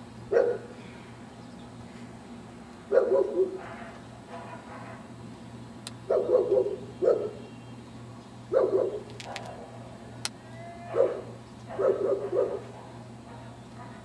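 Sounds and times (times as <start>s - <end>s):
dog barking: 0.3s - 0.7s, 2.9s - 5.0s, 6.1s - 7.4s, 8.5s - 9.8s, 10.9s - 14.0s.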